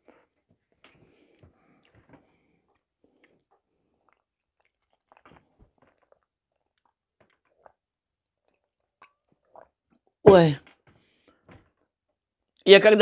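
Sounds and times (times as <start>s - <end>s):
sipping and swallowing water: 1.7s - 10.6s.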